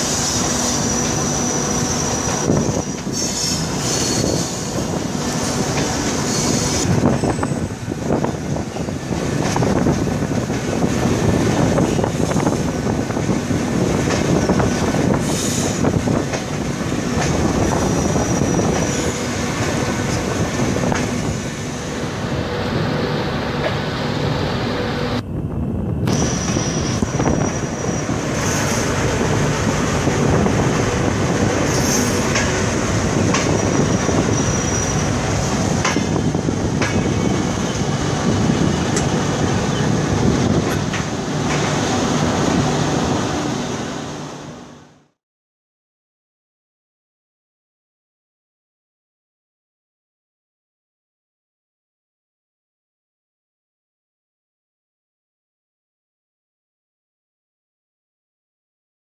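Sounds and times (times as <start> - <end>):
high wheel squeals: 0.0 - 7.7, 17.5 - 19.4, 26.1 - 29.0, 33.2 - 35.6
train rumbling over rails: 0.0 - 45.2
wheels clickety-clack: 9.4 - 10.7, 31.6 - 34.9, 35.8 - 37.9.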